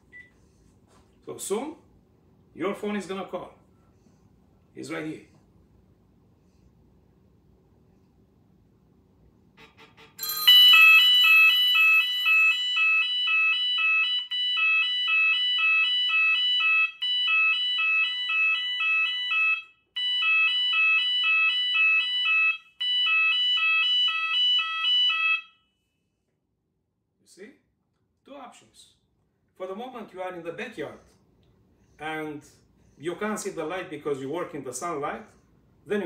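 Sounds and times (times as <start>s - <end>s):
cell phone ringtone melody: 9.6s - 13.2s.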